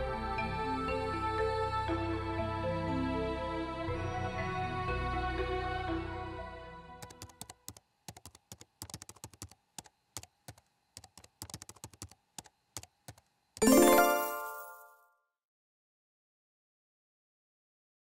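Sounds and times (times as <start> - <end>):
typing on computer keyboard: 7.0 - 13.7
bright chime: 13.6 - 15.0
soundtrack music: 13.6 - 15.0.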